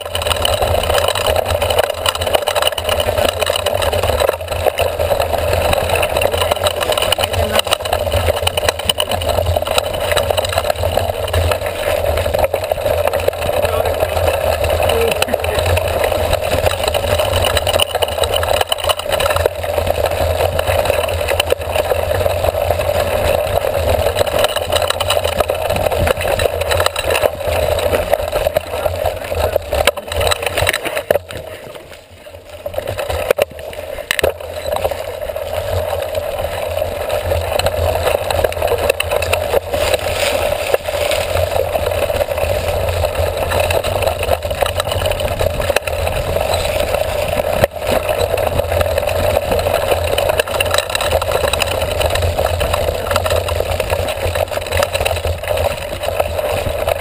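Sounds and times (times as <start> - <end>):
mountain bike rumble and rattle: 0.0 - 57.0.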